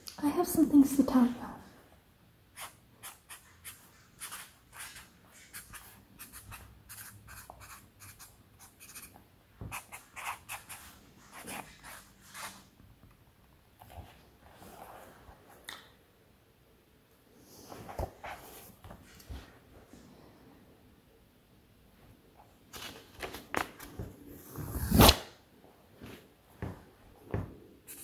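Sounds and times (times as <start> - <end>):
marker scratching on paper: 2.6 - 12.6.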